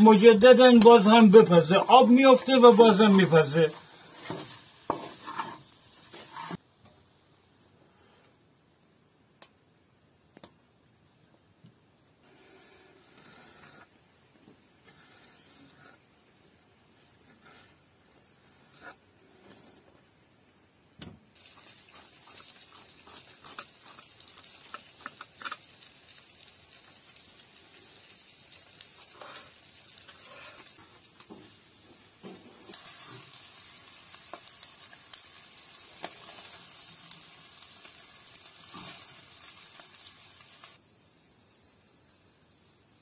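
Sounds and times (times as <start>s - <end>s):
food sizzling in a frying pan: 0.0s - 6.6s, 21.4s - 43.0s.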